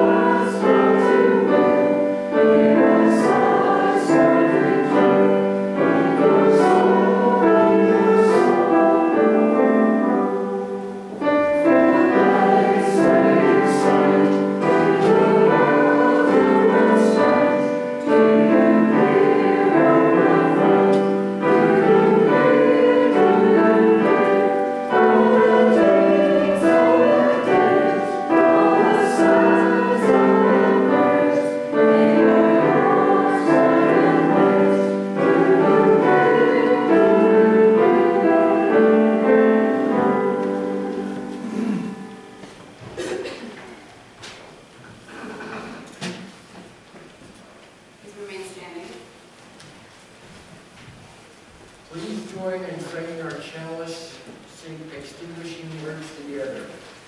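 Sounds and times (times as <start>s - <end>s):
congregation singing a hymn: 0.0s - 43.9s.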